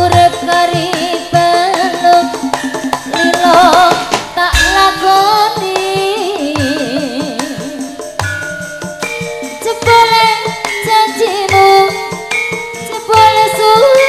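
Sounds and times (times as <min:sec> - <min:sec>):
person singing wavering melody: 0:00.0 - 0:08.2, 0:09.3 - 0:14.0
hand drum strokes: 0:00.0 - 0:12.0
ringing bronze metallophones: 0:02.3 - 0:06.1, 0:07.5 - 0:14.0.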